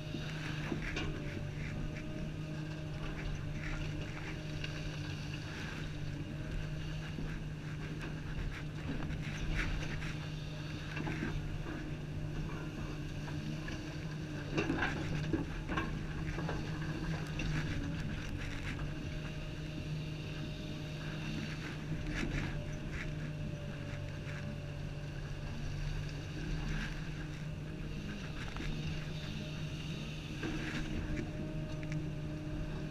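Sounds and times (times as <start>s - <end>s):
excavator diesel engine running: 0.0s - 32.9s
clunks and rattles: 10.8s - 19.4s.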